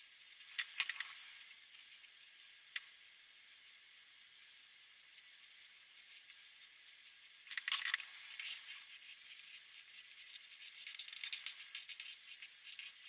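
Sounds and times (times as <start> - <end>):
marker scratching on paper: 8.1 - 13.0.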